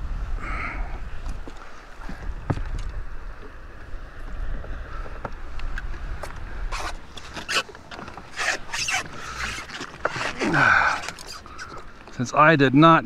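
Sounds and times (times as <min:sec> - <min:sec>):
wind rumble on microphone: 0:00.0 - 0:07.6
fishing tackle rustling: 0:05.3 - 0:12.3.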